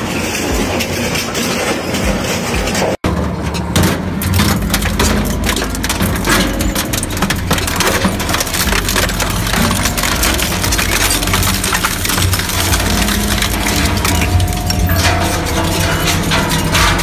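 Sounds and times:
industrial crusher humming: 0:00.0 - 0:17.0
material cracking and splintering: 0:03.6 - 0:17.0.

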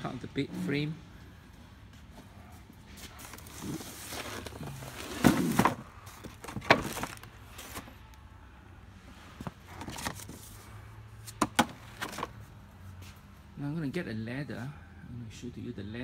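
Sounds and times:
plastic wrapping rustling: 0:03.0 - 0:08.0
items knocking and clattering: 0:03.3 - 0:07.9, 0:11.3 - 0:12.4.

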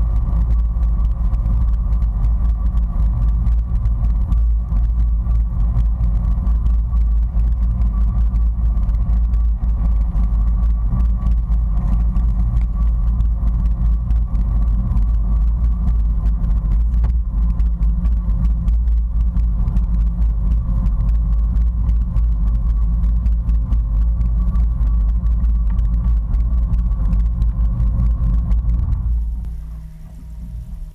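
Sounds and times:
watercraft engine idling: 0:00.0 - 0:30.9.

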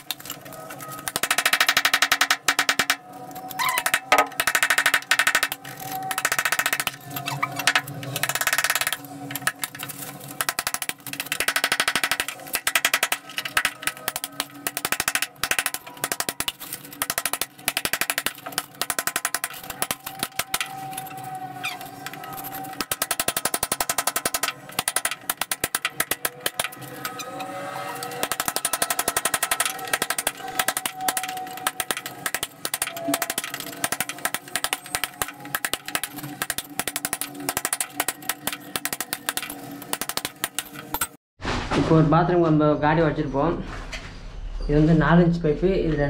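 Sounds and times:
power chipping hammer on wall: 0:03.7 - 0:21.2, 0:21.8 - 0:27.3, 0:28.0 - 0:41.1.

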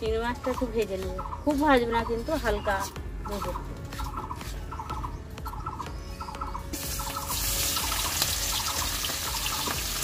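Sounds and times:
prawns sizzling in hot oil: 0:06.7 - 0:10.0.

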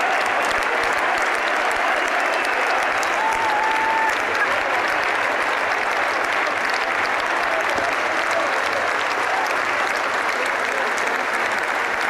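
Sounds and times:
people shouting: 0:00.0 - 0:04.6
crowd cheering and clapping: 0:00.0 - 0:12.0.

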